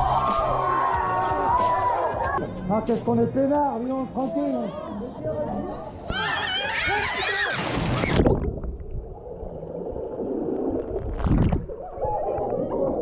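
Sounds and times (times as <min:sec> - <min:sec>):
people jumping into pool: 0:05.9 - 0:08.8
brief splash: 0:07.4 - 0:08.6
underwater gurgling and rumbling: 0:07.7 - 0:13.0.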